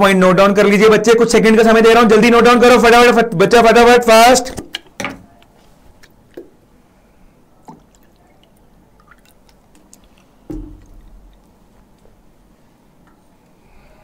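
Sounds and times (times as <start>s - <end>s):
water pouring into a glass: 7.7s - 11.5s
dull thump: 10.5s - 10.9s.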